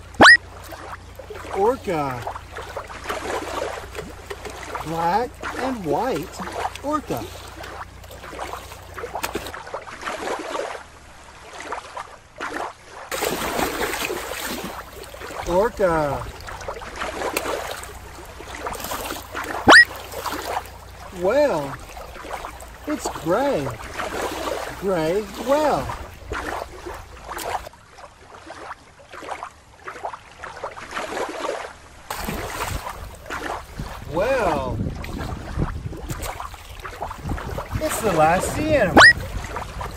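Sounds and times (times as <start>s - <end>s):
water lapping at rocky shore: 0.0s - 39.9s
water splashing and sloshing: 0.0s - 39.9s
low steady rumble: 14.1s - 27.8s.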